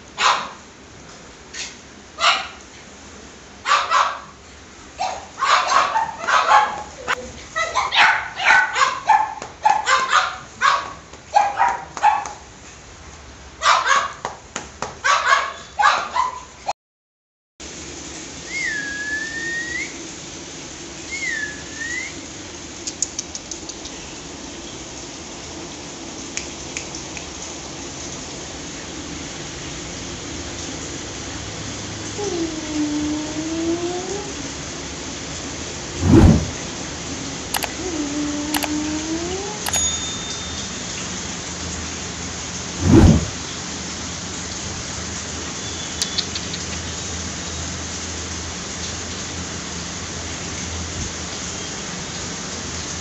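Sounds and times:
puppies yapping and barking: 5.0 - 6.9
faint clicks: 22.8 - 24.0, 37.6 - 37.8, 38.6 - 38.8
low hum: 35.9 - 36.6, 42.7 - 43.4.

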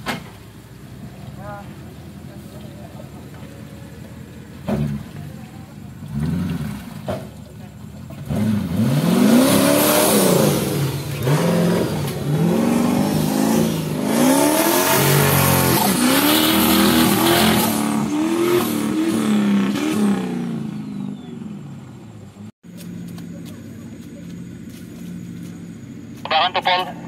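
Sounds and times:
buggy engine revving: 0.0 - 27.0.

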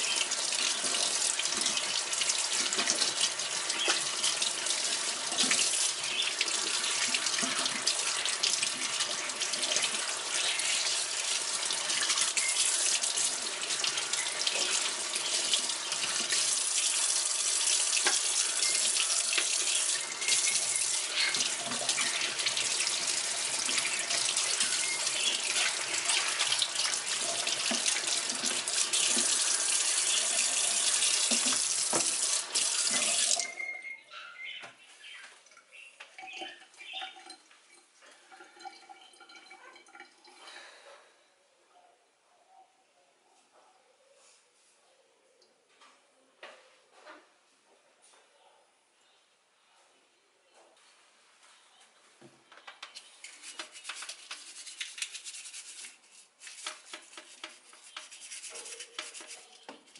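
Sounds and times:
running water splashing: 0.0 - 33.6, 53.2 - 59.9
small splashes and ticks: 52.8 - 59.9.

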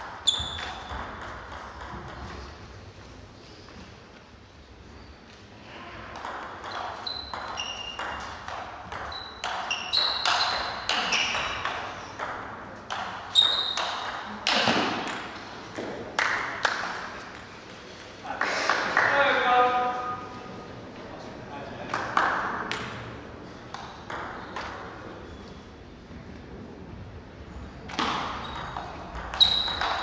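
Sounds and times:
table tennis ball clicking: 27.9 - 30.0.

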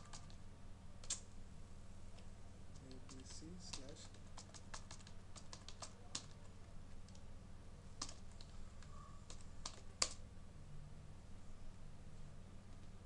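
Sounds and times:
keyboard typing clicks: 0.0 - 0.4, 2.8 - 6.4, 8.0 - 10.2.

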